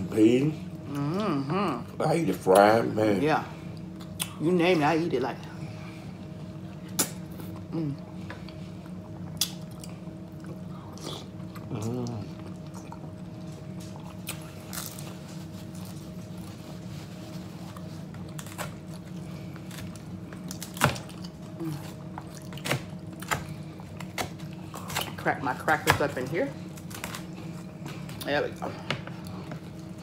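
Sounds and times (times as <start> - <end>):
steady low hum: 0.0 - 30.0
person humming: 0.9 - 1.9, 11.7 - 12.4
chewing and mouth sounds: 3.6 - 4.4, 6.6 - 25.2.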